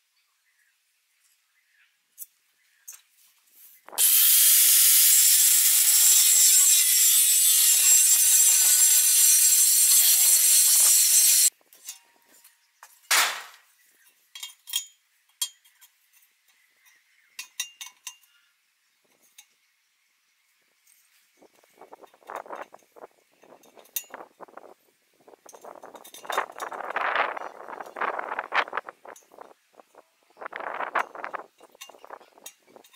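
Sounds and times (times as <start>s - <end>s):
angle grinder cutting steel: 4.0s - 11.5s
light clicks and clinks: 14.0s - 19.7s.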